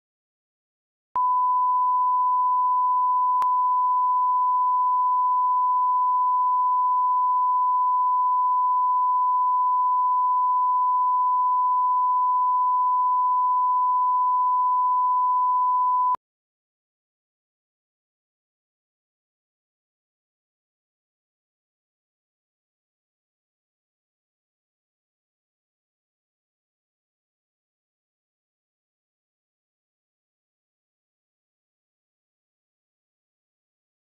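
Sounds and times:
steady sine test tone: 1.2 - 16.2.

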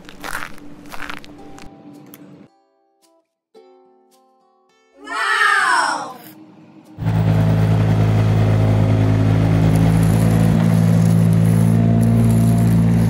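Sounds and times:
tractor engine idling: 7.0 - 13.0.

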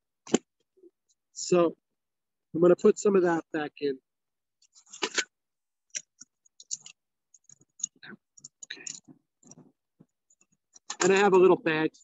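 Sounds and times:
small clicks and scrapes: 4.6 - 11.2.

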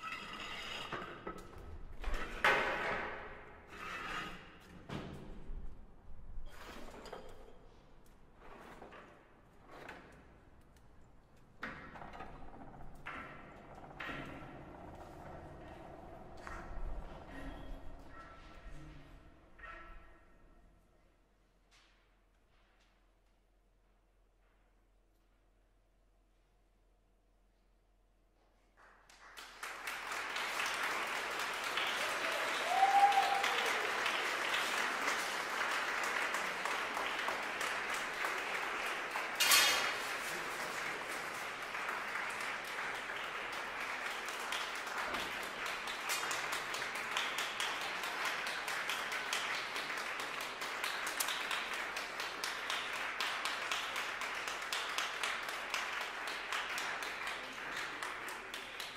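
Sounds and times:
audience applauding: 29.1 - 58.9.

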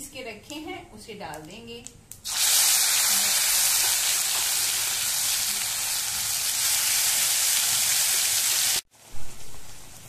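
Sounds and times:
paste sizzling in hot oil: 2.2 - 8.9.

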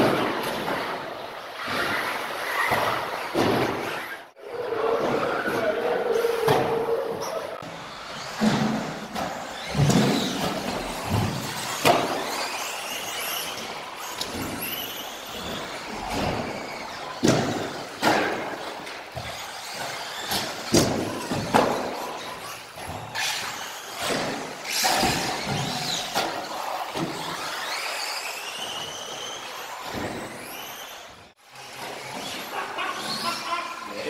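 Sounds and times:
toy cars thumping on landing: 8.2 - 31.0.

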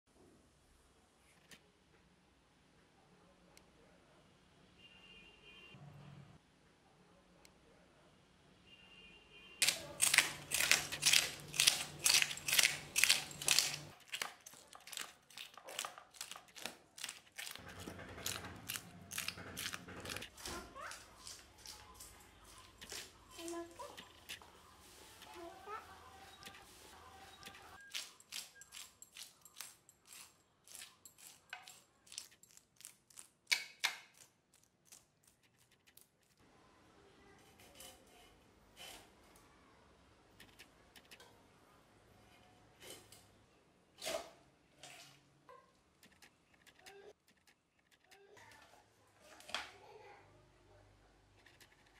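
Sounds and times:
knife scraping fish scales: 9.6 - 21.8, 26.3 - 33.3.

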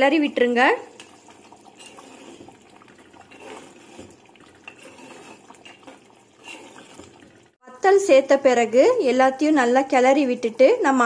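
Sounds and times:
spoon stirring thick curry: 0.9 - 7.4.

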